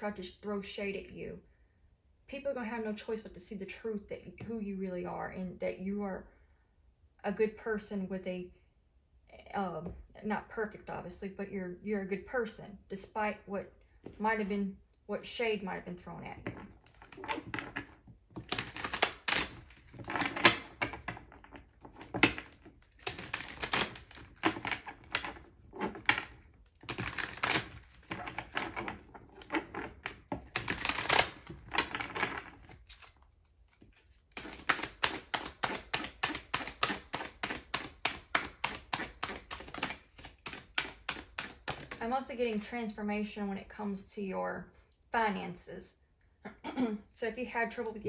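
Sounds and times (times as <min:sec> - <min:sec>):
cards being shuffled: 0:16.4 - 0:42.6.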